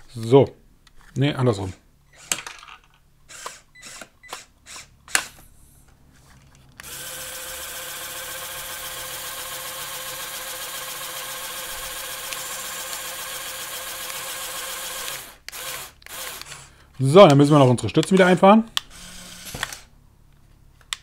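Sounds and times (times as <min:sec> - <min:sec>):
small electric motors and pumps: 0:02.1 - 0:02.7, 0:03.3 - 0:05.4, 0:06.8 - 0:16.7, 0:18.8 - 0:19.9.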